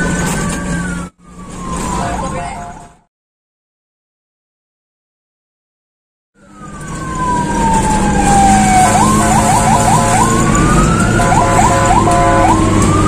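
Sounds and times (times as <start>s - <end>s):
electronic siren wailing and warbling: 0.0s - 3.1s, 6.4s - 13.0s
vehicle engine and tyres hum: 0.0s - 3.1s, 6.4s - 13.0s.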